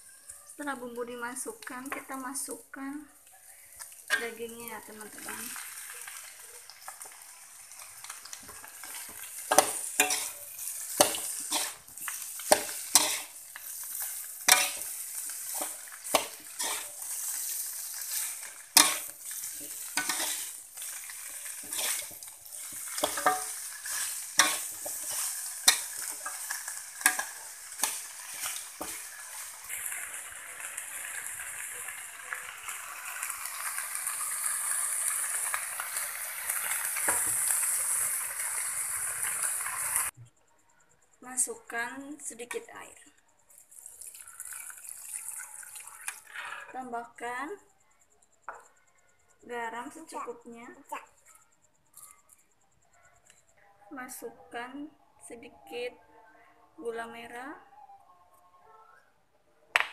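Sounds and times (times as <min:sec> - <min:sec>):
frying sizzle: 0:00.0 - 0:40.2, 0:43.5 - 0:47.6
spatula scraping wok: 0:03.2 - 0:40.1.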